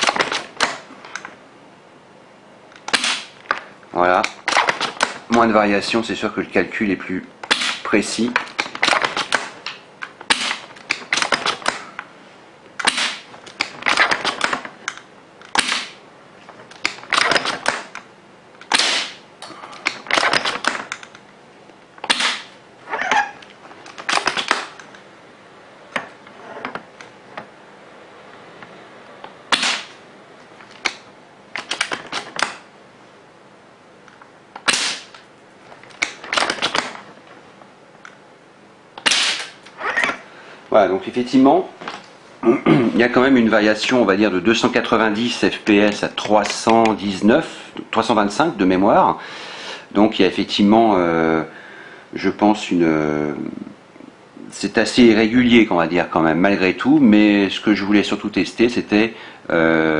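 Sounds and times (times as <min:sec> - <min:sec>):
airsoft rifle shot pops: 0:02.9 - 0:03.4, 0:22.1 - 0:22.6, 0:29.5 - 0:30.0, 0:34.6 - 0:35.1, 0:39.0 - 0:39.5
rifle bolt clicks: 0:31.6 - 0:32.6.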